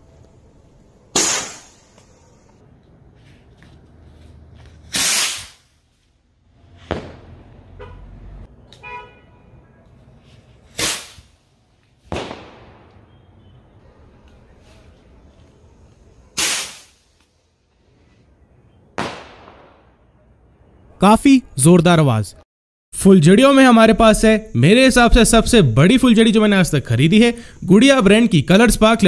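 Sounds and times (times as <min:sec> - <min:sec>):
sky rockets bursting: 0:01.1 - 0:02.2, 0:04.9 - 0:05.8, 0:06.8 - 0:07.4, 0:10.7 - 0:11.4, 0:12.1 - 0:12.9, 0:16.3 - 0:17.1, 0:19.0 - 0:19.9.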